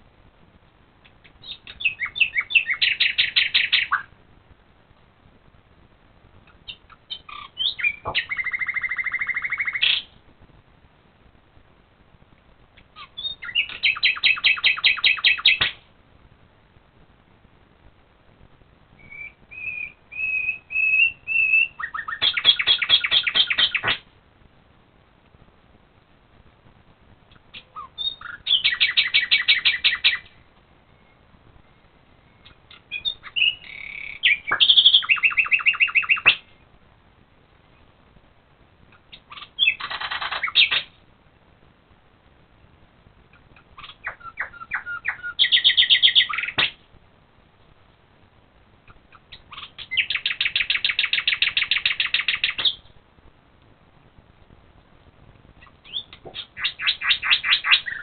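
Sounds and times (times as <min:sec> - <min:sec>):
nightingale singing: 0:01.0 - 0:04.2, 0:06.4 - 0:10.2, 0:12.7 - 0:15.9, 0:18.9 - 0:24.1, 0:27.3 - 0:36.7, 0:38.9 - 0:41.0, 0:43.2 - 0:46.9, 0:48.8 - 0:53.0, 0:55.5 - 0:58.0.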